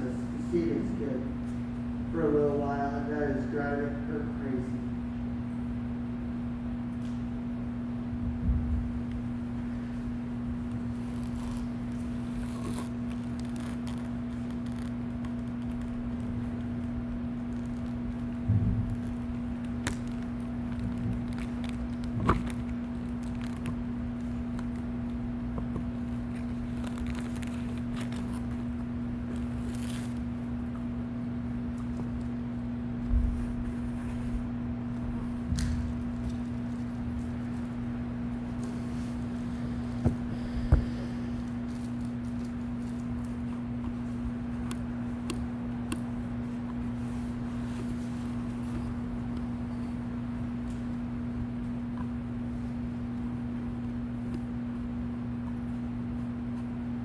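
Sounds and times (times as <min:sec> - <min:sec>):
steady low hum: 0:00.0 - 0:57.0
soft footsteps: 0:33.0 - 0:51.0.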